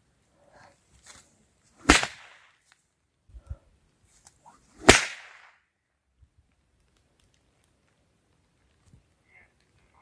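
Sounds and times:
whip cracks: 1.8 - 2.5, 4.8 - 5.6.

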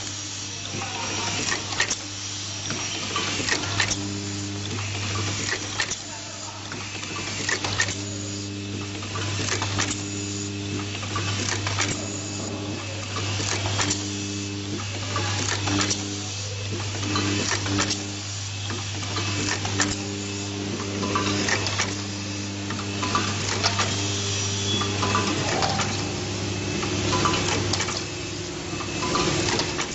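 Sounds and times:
intermittent machine buzz: 0.0 - 29.9
sharp pneumatic clacks: 1.3 - 2.1, 2.7 - 6.0, 8.8 - 20.1, 20.8 - 26.1, 26.8 - 28.1, 28.8 - 29.9
machine low hum: 6.5 - 29.9.

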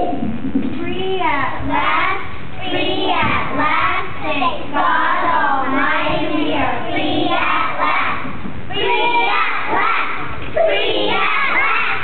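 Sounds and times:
children shouting: 8.8 - 12.0.

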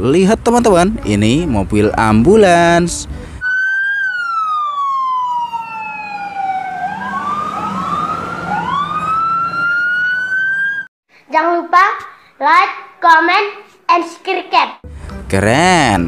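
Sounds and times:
ambulance siren wailing: 3.4 - 10.9.

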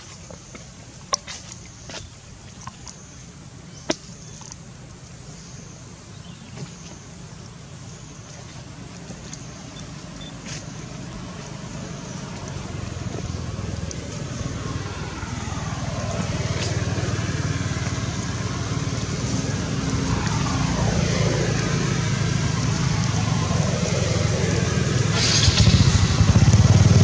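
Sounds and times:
vehicle engine hum: 2.8 - 27.0.

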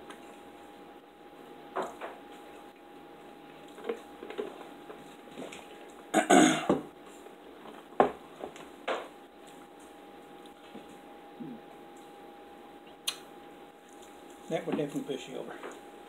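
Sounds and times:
man's rough throat noise: 6.1 - 6.8.

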